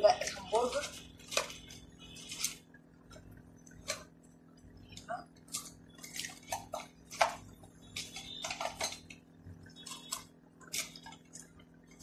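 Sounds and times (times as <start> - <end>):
metal utensils clinking: 8.0 - 9.2.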